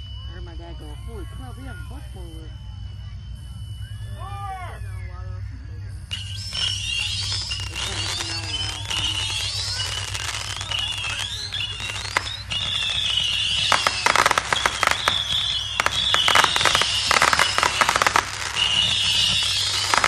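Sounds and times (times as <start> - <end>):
firework shells whistling: 0.0 - 20.0
fireworks crackling pops: 6.1 - 20.0.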